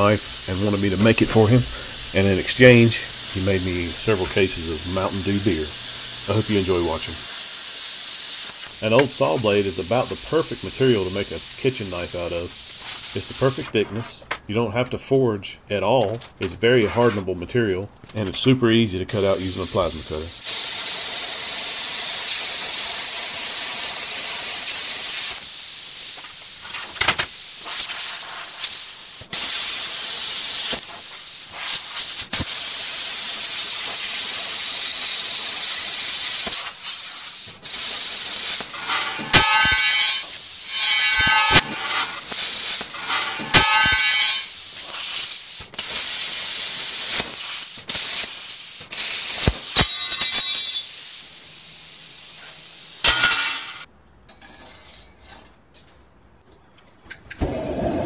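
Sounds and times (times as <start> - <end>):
harsh buzzing tone: 0.0 - 12.4, 33.9 - 44.5
plasma cutter hissing: 0.0 - 13.7, 19.1 - 53.9.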